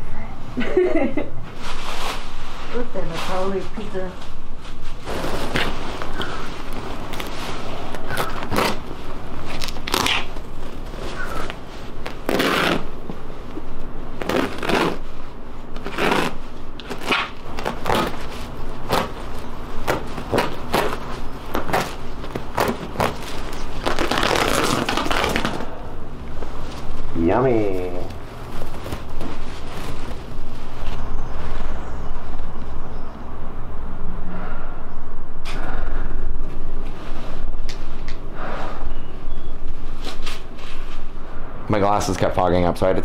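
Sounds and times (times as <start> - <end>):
carpet ripping and crackling: 5.0 - 13.0, 14.2 - 15.1, 15.7 - 25.7.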